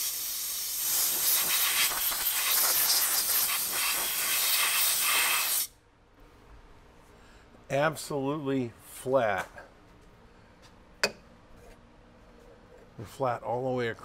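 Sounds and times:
air blow gun hissing: 0.0s - 5.7s.

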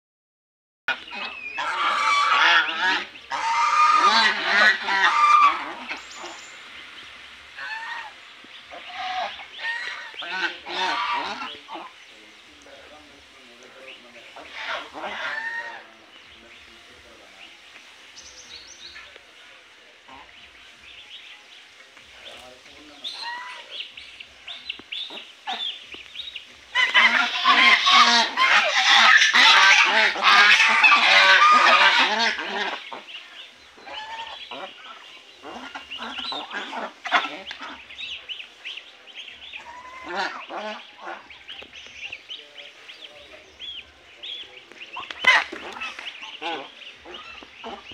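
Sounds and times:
geese honking: 0.9s - 21.3s, 22.0s - 47.9s
goslings peeping: 0.9s - 21.3s, 22.0s - 47.9s.

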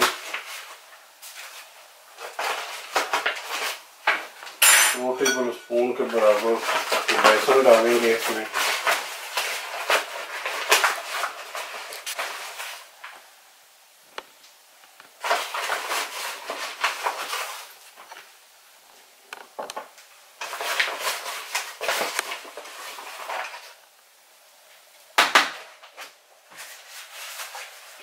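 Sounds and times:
plastic packet crinkling: 0.0s - 4.6s, 5.9s - 13.2s, 15.2s - 18.4s, 19.6s - 23.9s.

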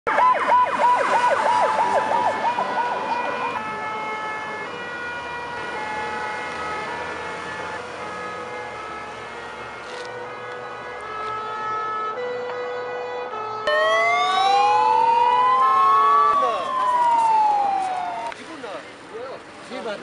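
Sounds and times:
fast yelping siren: 0.1s - 4.2s, 13.6s - 18.3s
steady siren tones: 0.1s - 18.4s.

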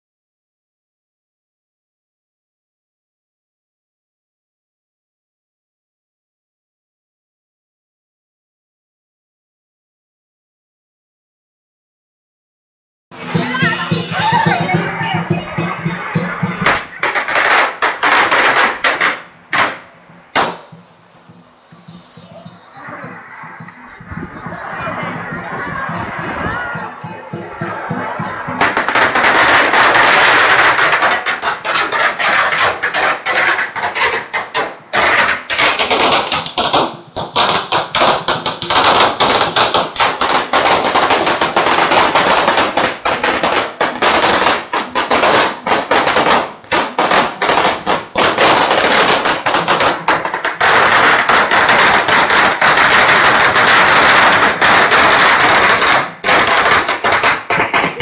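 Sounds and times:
firecrackers crackling: 13.2s - 58.0s.

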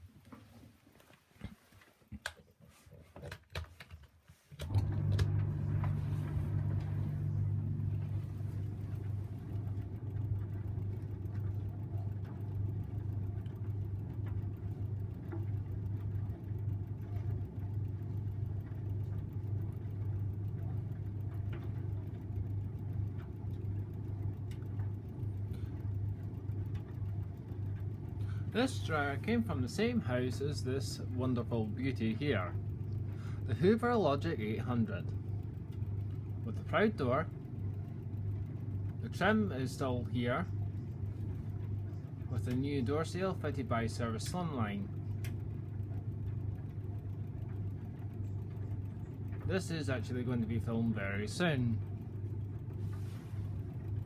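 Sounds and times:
clicks: 3.2s - 12.6s
tumble dryer running: 4.5s - 54.0s.

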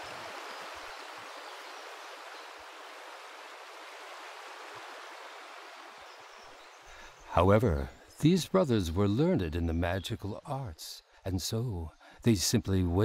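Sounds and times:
river water rushing over rocks: 0.0s - 6.6s.

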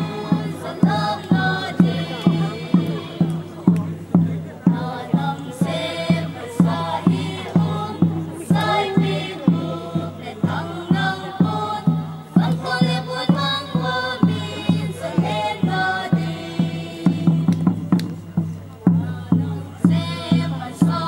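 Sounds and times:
steady drum beat: 0.0s - 21.0s.

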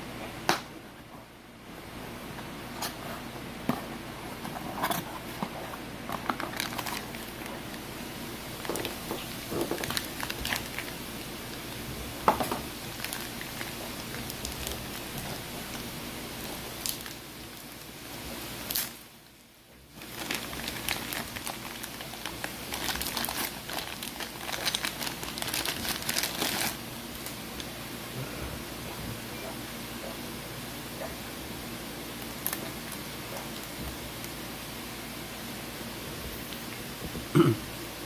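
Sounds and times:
plastic bag crinkling: 4.5s - 17.8s, 19.9s - 27.7s
plastic bag tearing: 6.1s - 7.8s, 8.6s - 11.0s, 12.7s - 17.6s, 18.6s - 19.0s, 20.0s - 27.4s.

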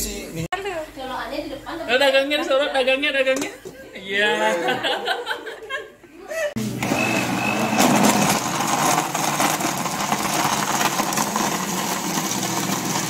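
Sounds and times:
blender crushing ice: 6.6s - 13.0s.

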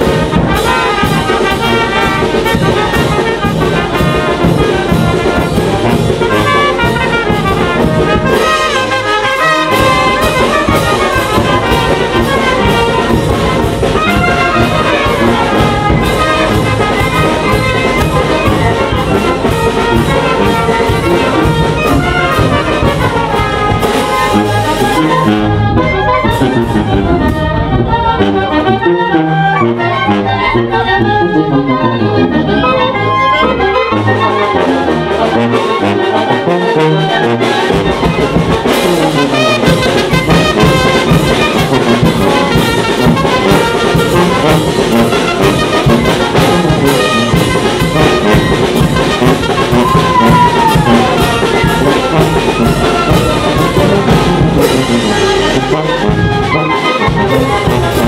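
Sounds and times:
drums steady beat: 0.0s - 25.6s, 37.4s - 56.6s
wind band playing: 0.0s - 58.0s.

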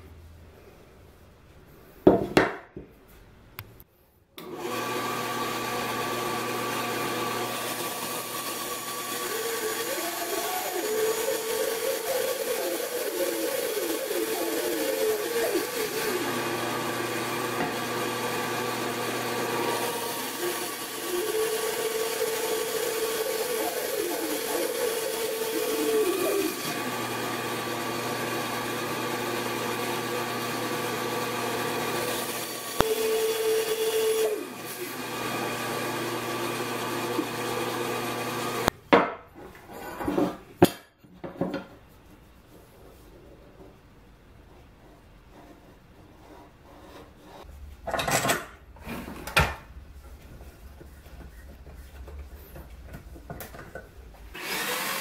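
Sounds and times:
bandsaw cutting wood: 4.4s - 38.7s, 54.3s - 55.0s
bandsaw running: 4.4s - 38.7s, 54.3s - 55.0s.

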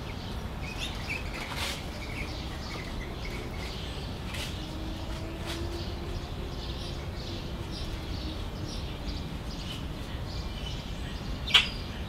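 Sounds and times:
birds chirping: 0.0s - 12.0s
loud sharp bird chirp: 5.4s - 12.0s.

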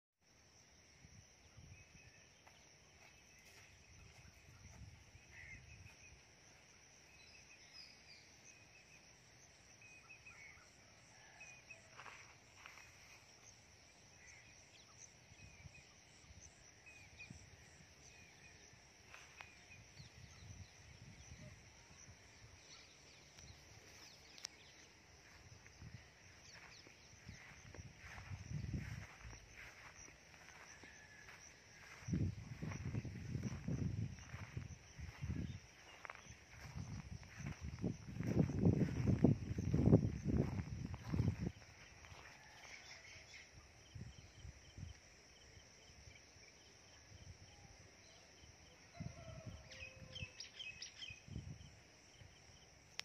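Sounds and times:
insect drone: 0.2s - 53.0s
low wind rumbles on microphone: 25.2s - 42.0s, 51.2s - 51.8s.

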